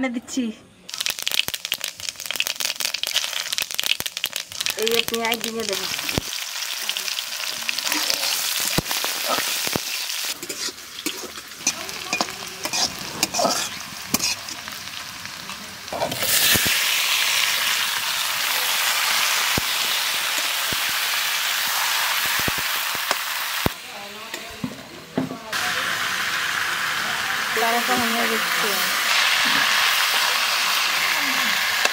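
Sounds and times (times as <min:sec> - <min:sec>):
chicken sizzling in wok: 0:00.9 - 0:31.9
onions and spices frying in oil: 0:00.9 - 0:31.9
metal spatula scraping wok: 0:10.3 - 0:14.7.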